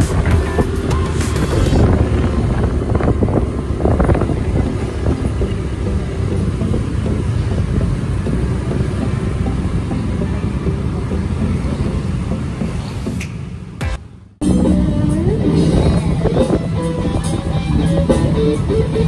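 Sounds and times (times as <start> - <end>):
wind buffeting microphone: 0.0 - 9.8, 15.2 - 19.0
vehicle rumble: 0.0 - 19.0.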